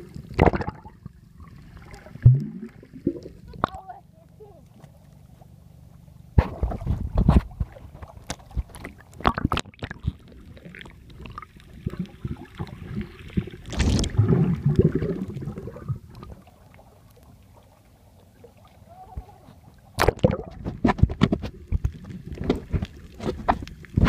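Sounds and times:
water splashing and gurgling: 0.0s - 24.0s
muffled underwater noise: 18.1s - 19.8s.

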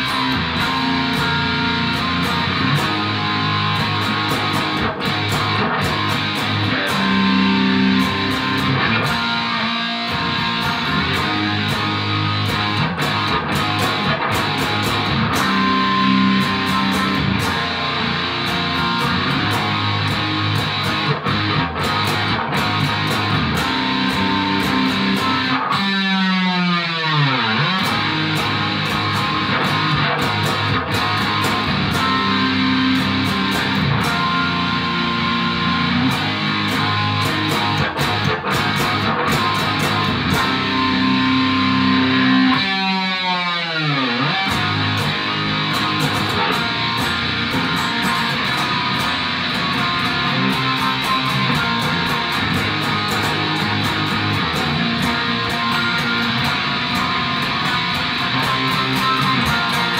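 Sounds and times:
distorted electric guitar: 0.0s - 59.9s.

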